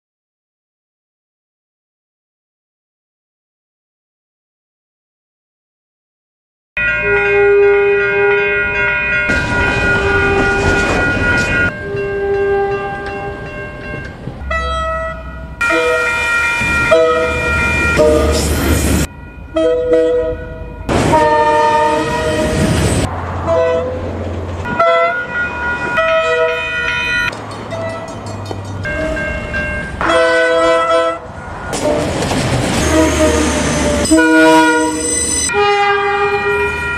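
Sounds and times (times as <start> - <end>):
locomotive horn toots: 6.8 - 13.5, 14.4 - 28.2, 28.8 - 36.9
passing train rumble and clatter: 6.8 - 36.9.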